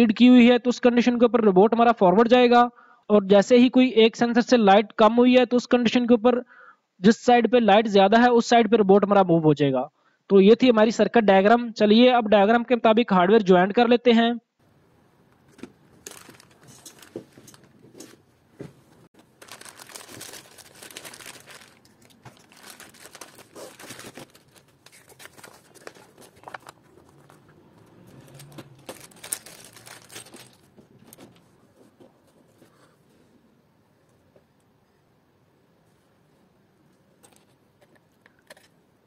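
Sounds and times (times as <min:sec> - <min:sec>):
plastic bag and paper crinkling: 0:15.5 - 0:18.1, 0:19.2 - 0:31.9.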